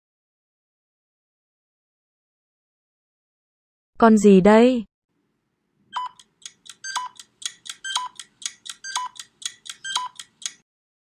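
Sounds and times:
electronic timer ticks: 5.9s - 10.6s
electronic beep: 6.0s - 8.2s, 8.8s - 9.2s, 9.8s - 10.3s.

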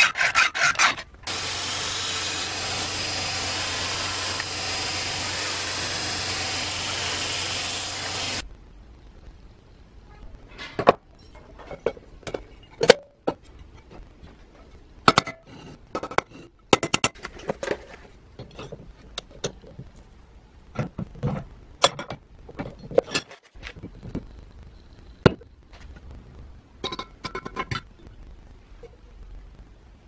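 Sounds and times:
metal parts and tools clinking: 21.3s - 24.0s.

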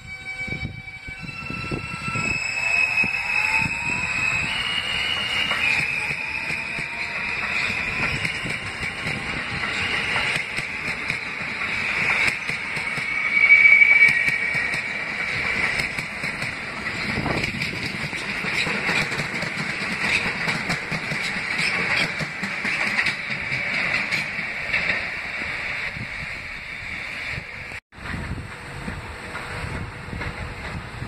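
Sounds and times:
train rumble: 0.0s - 31.0s
train wheels squealing on rail: 0.0s - 31.0s
wheels clicking over rail joints: 14.2s - 25.1s.

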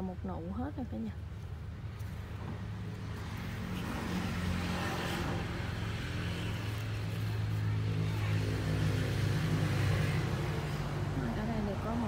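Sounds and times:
vehicle rushing past: 2.6s - 12.0s.

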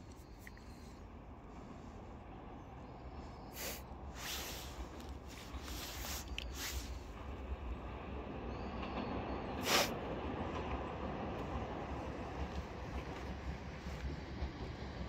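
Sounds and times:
electric train rumble: 0.9s - 15.0s
hissing bursts: 3.6s - 7.1s, 9.6s - 9.9s.

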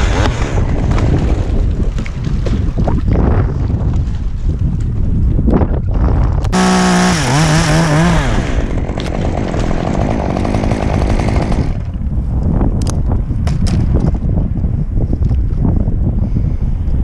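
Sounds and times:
wind buffeting microphone: 0.0s - 17.0s
chainsaw cutting through limb: 6.6s - 12.0s.

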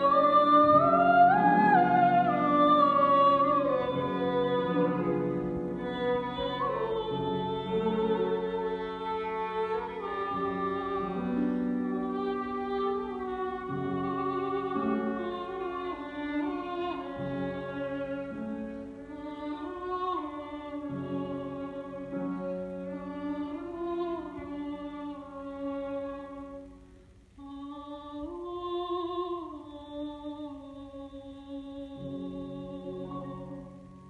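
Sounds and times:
soprano singing operatic: 0.0s - 26.8s, 27.4s - 34.0s
piano accompaniment: 0.0s - 27.0s
violin: 0.0s - 34.0s.

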